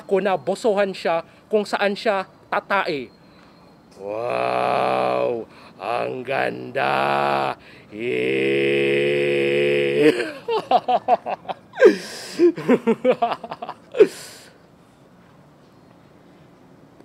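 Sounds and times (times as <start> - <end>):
man holding a long aaah: 4.0 - 6.1, 6.7 - 10.6
man laughing with breathy gasps: 9.8 - 14.6.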